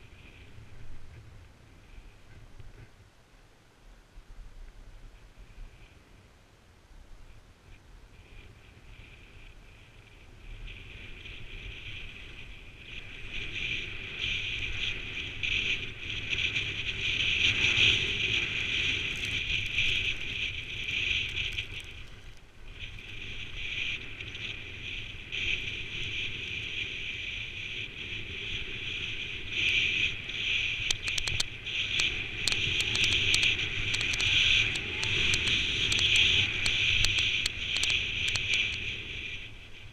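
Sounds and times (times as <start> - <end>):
wind rumbling on microphone: 0.0 - 39.9
skis hissing over snow: 8.2 - 39.9
sharp clicks: 30.9 - 38.8.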